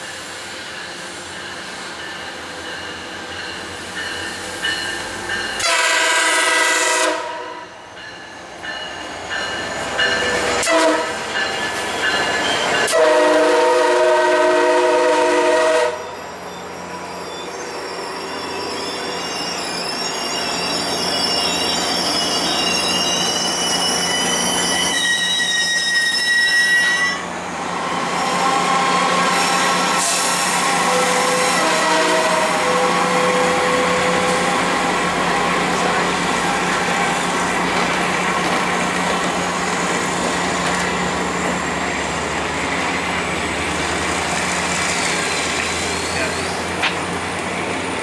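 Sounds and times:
train cars rolling by: 0:00.0 - 0:48.0
train horn chord blasts: 0:05.6 - 0:07.7, 0:10.6 - 0:11.2, 0:12.9 - 0:16.0, 0:30.7 - 0:34.4
high wheel squeal: 0:08.2 - 0:12.9, 0:16.0 - 0:27.3, 0:44.7 - 0:46.7.

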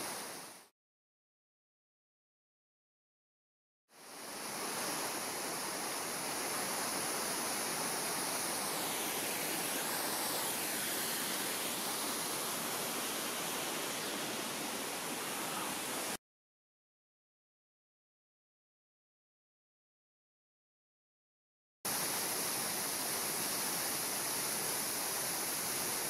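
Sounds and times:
waterfall rushing: 0:04.0 - 0:16.2, 0:21.9 - 0:26.0.

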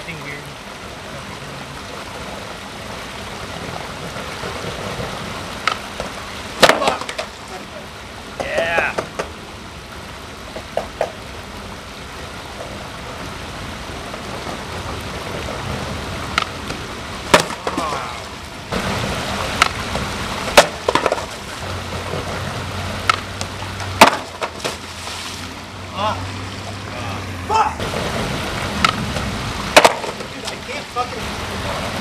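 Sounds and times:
stream running: 0:00.0 - 0:32.0
skateboard clacking on concrete: 0:04.2 - 0:07.4, 0:08.4 - 0:09.4, 0:10.5 - 0:11.2, 0:16.3 - 0:18.0, 0:19.6 - 0:22.4, 0:23.0 - 0:24.8, 0:28.8 - 0:30.6.

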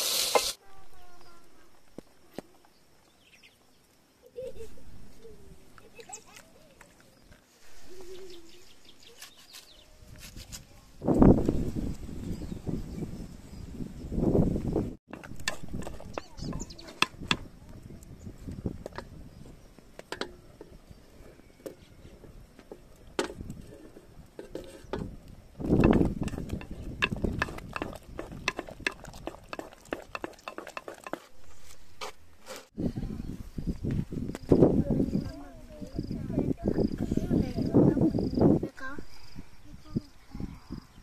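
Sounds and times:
kitchenware clinking: 0:25.8 - 0:31.3.

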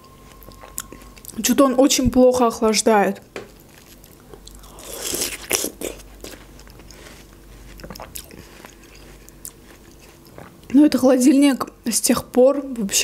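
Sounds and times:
person chewing watermelon: 0:00.0 - 0:01.4, 0:03.6 - 0:10.8.

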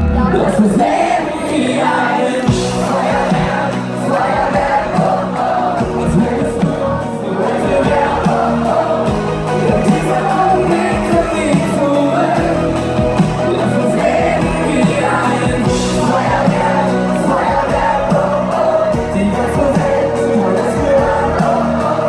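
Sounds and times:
live pop band: 0:00.0 - 0:22.0
man singing lead vocal: 0:00.0 - 0:22.0.

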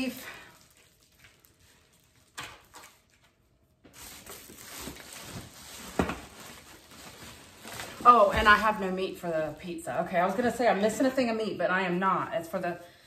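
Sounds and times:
rustle of foil and plastic packaging: 0:00.0 - 0:09.0.

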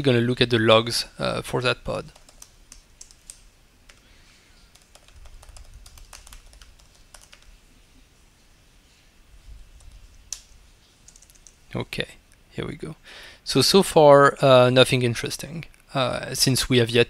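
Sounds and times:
computer keyboard typing: 0:02.0 - 0:04.1, 0:04.7 - 0:07.5, 0:09.8 - 0:11.6.

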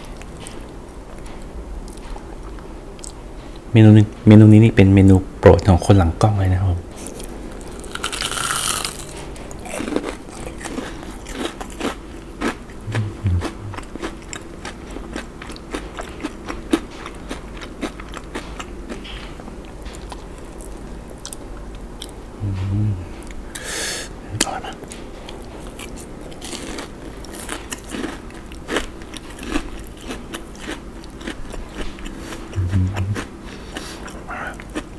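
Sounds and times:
crunchy chewing: 0:07.0 - 0:22.2, 0:24.4 - 0:34.9
crunching bite: 0:07.6 - 0:19.1, 0:25.4 - 0:34.9.

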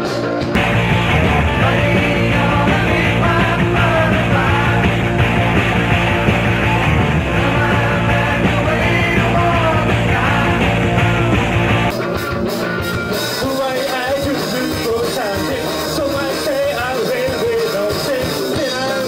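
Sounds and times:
lead vocal: 0:00.0 - 0:19.0
live rock band: 0:00.0 - 0:19.0.

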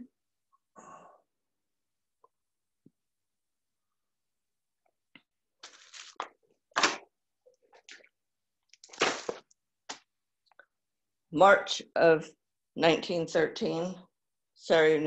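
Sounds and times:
plastic sleeves crinkling: 0:05.6 - 0:07.0, 0:08.7 - 0:09.5.

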